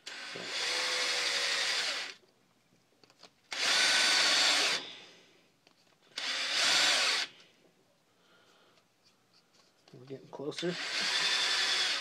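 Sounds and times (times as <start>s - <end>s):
cordless drill spinning: 0.0s - 2.2s, 3.5s - 4.9s, 6.0s - 7.5s, 10.6s - 12.0s.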